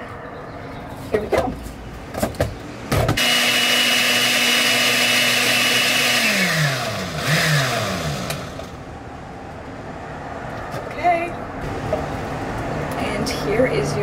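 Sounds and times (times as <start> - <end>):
blender motor running: 3.2 - 8.7
blender spinning down whine: 3.2 - 8.7.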